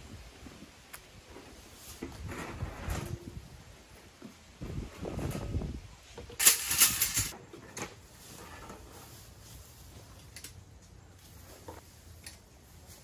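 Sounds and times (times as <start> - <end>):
metal grid panels clattering: 6.3 - 7.9.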